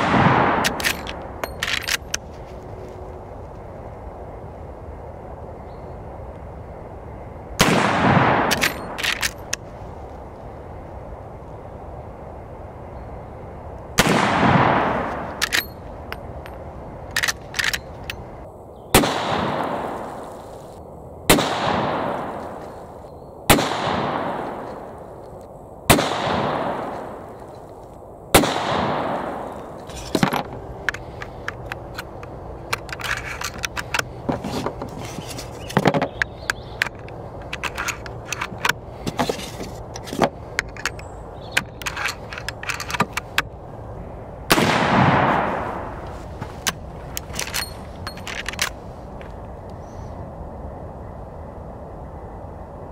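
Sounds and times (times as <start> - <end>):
rifle shots with rolling echo: 0.0 - 1.5, 7.6 - 9.3, 14.0 - 15.6, 18.9 - 20.3, 21.3 - 22.6, 23.5 - 25.0, 25.9 - 27.4, 28.3 - 29.8, 44.5 - 46.0
metallic rattles of rifle action: 0.6 - 2.3, 8.5 - 9.6, 15.3 - 18.2, 29.8 - 43.4, 46.5 - 48.8.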